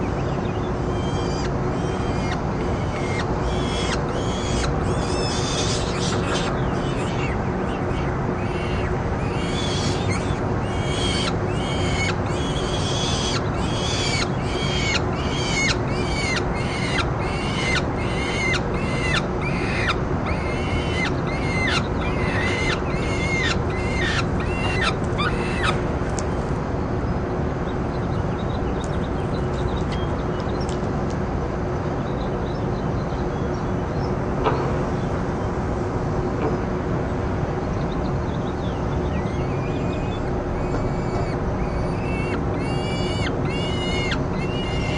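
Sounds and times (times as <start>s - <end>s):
low constant hum: 0.0s - 44.9s
falcon calling: 1.0s - 25.8s, 39.4s - 44.9s.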